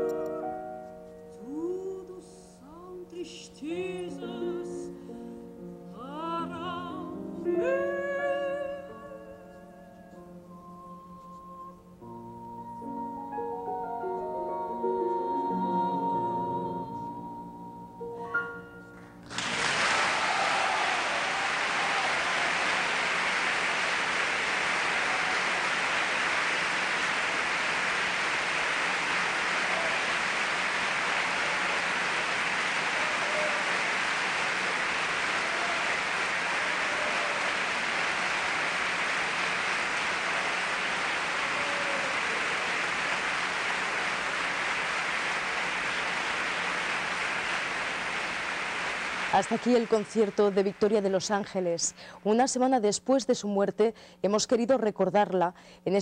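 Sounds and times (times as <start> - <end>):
audience applauding: 19.2 - 51.6.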